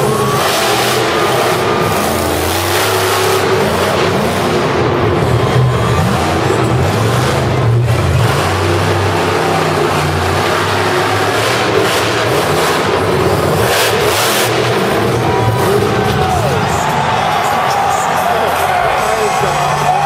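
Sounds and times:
truck engine revving: 0:00.0 - 0:20.0.

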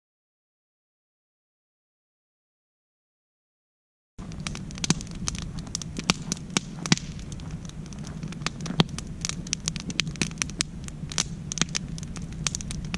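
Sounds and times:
campfire crackling and popping: 0:04.2 - 0:12.9.

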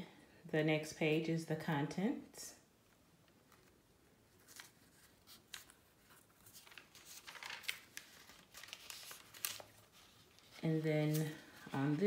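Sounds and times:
book pages turning: 0:03.3 - 0:12.0
paper rustling: 0:03.5 - 0:12.0.

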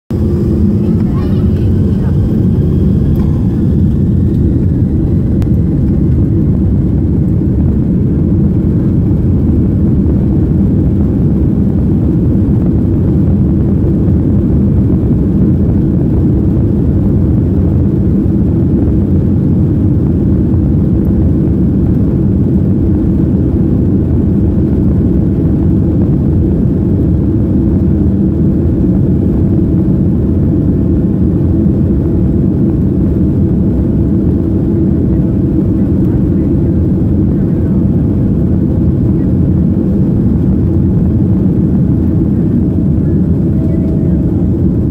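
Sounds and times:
jet engines low rumble: 0:00.0 - 0:44.9
faint steady tone: 0:42.9 - 0:44.8.

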